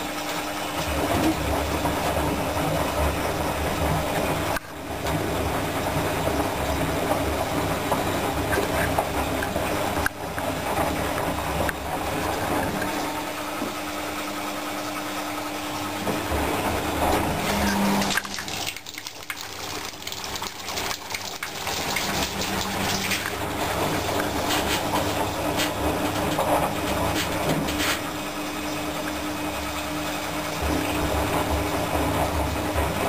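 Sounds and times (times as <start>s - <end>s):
washing machine motor hum: 0.0s - 33.0s
washing machine drum turning: 15.6s - 33.0s.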